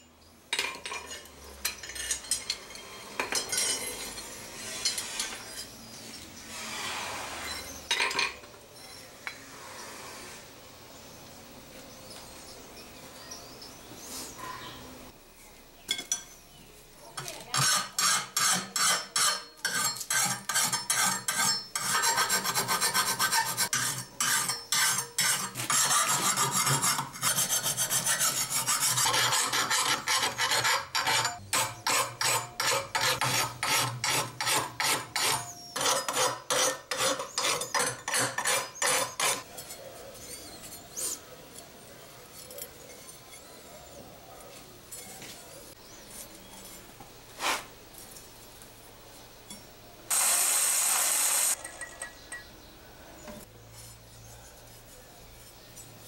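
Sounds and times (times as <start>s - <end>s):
hand file rasping on steel: 17.6s - 39.5s.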